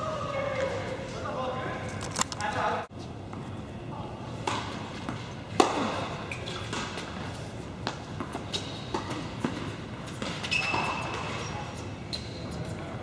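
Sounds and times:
racket striking tennis ball: 4.4s - 7.1s, 7.8s - 11.4s
tennis ball bouncing: 4.4s - 11.4s.

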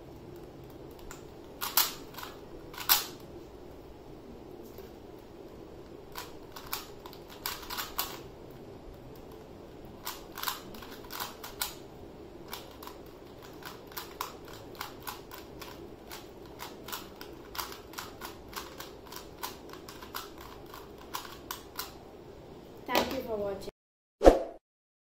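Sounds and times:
puzzle cube clicking: 0.6s - 3.2s, 6.1s - 8.2s, 10.0s - 11.8s, 12.5s - 22.0s.

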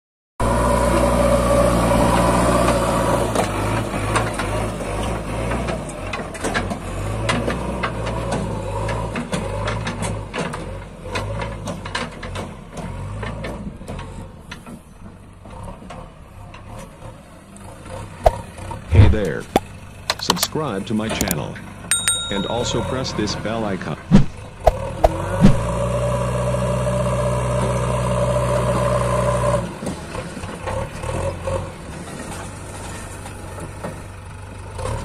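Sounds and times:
diesel engine running: 0.4s - 35.0s.

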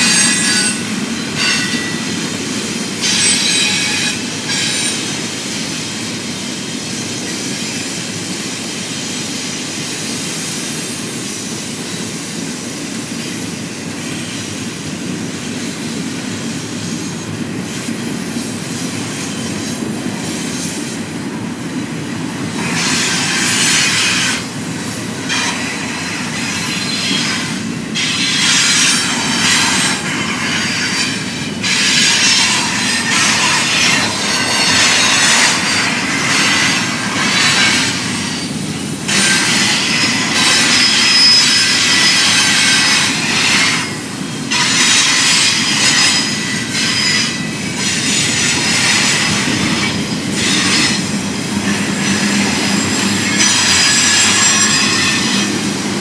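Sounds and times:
steel wheel squeal: 0.0s - 5.9s, 22.4s - 56.0s
train cars rumbling past: 11.0s - 56.0s.

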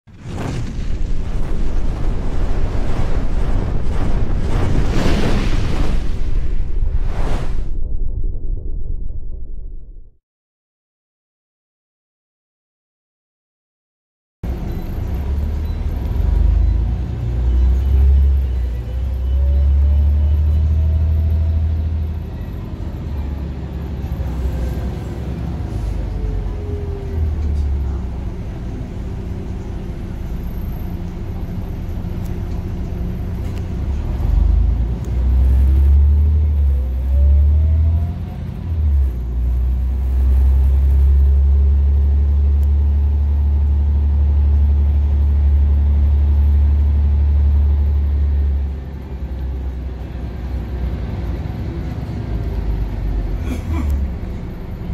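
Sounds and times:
low engine and road rumble: 0.0s - 5.3s, 14.4s - 54.9s.

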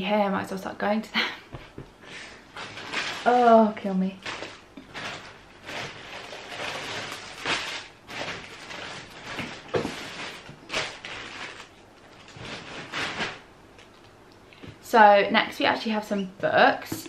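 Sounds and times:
rustling and shuffling: 1.5s - 15.0s.

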